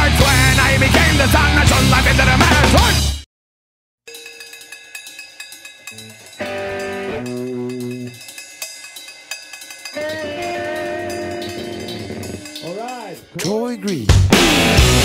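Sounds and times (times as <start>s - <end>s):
loud rock music: 0.0s - 3.2s, 14.0s - 15.0s.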